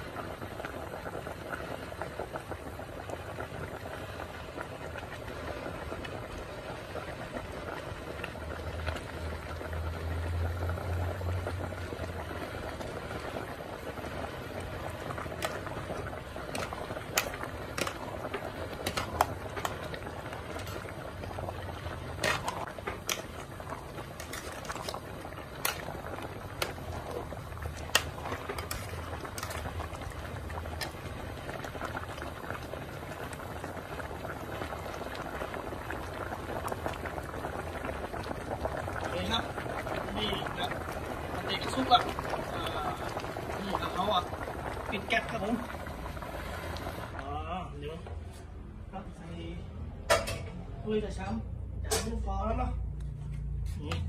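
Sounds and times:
pot bubbling at a boil: 0.0s - 48.2s.

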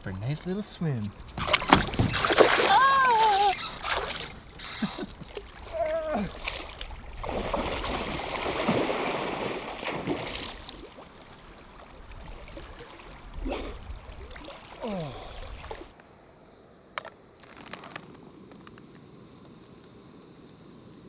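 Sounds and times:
person splashing in water: 1.4s - 11.3s.

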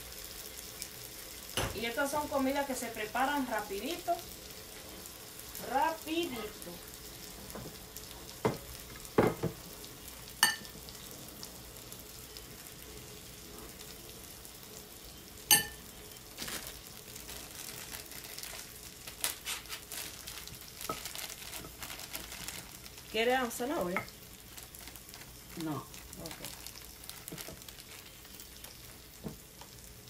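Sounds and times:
meat sizzling on a griddle: 0.0s - 30.0s.

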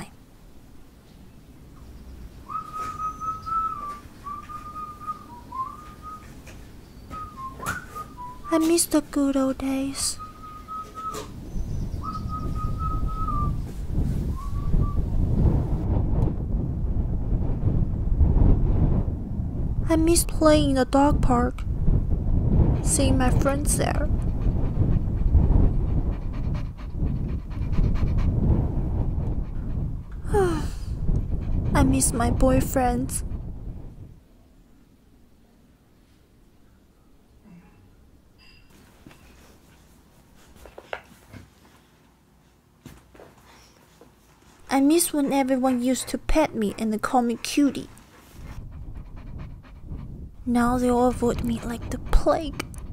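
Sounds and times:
person whistling a slow tune: 2.5s - 6.3s, 7.1s - 8.5s, 10.2s - 11.3s, 12.0s - 13.6s, 14.4s - 15.0s
low steady rumble: 8.2s - 37.4s, 44.6s - 52.9s
dog panting: 22.4s - 33.8s, 44.4s - 52.9s.

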